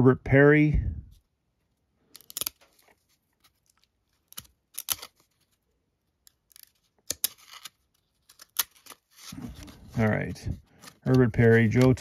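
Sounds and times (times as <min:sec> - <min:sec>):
cards flicking and sliding: 0:02.2 - 0:05.4, 0:06.3 - 0:12.0.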